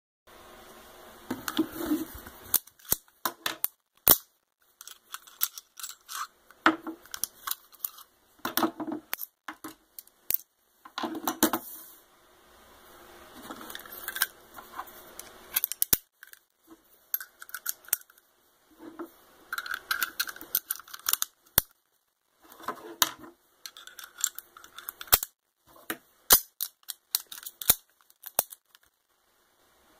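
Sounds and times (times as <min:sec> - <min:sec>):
pistol parts rattling and scraping: 0:02.5 - 0:11.6, 0:13.5 - 0:18.2, 0:18.9 - 0:21.8, 0:22.5 - 0:25.4, 0:26.3 - 0:28.9.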